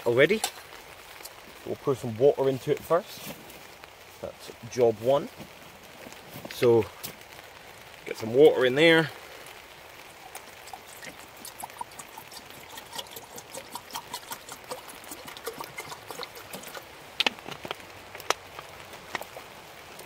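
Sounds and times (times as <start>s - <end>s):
water pouring into kettle: 10.0s - 17.2s.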